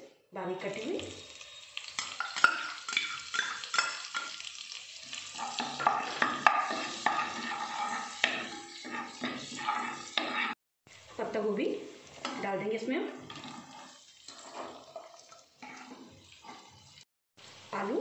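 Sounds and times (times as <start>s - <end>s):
chillies sizzling in hot oil: 0.6s - 18.0s
spatula scraping and tapping pan: 1.8s - 10.6s, 12.1s - 12.5s, 13.2s - 17.0s.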